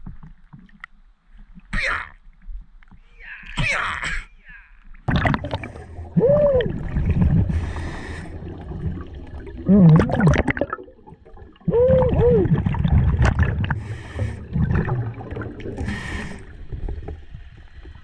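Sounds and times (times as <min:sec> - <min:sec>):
water splashing: 0:05.0 - 0:18.0
gurgling exhale bubbles: 0:05.1 - 0:18.0
scuba regulator inhale hiss: 0:07.5 - 0:08.6, 0:13.8 - 0:14.6, 0:15.8 - 0:16.7.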